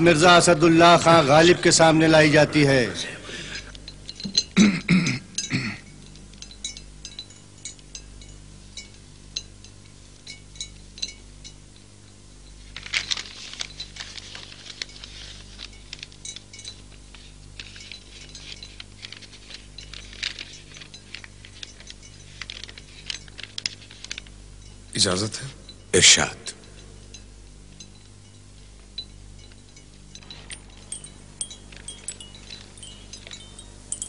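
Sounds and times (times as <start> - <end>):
low steady hum: 0.0 - 34.0
rustling: 12.6 - 24.9, 28.8 - 34.0
small vessels clinking: 29.0 - 34.0.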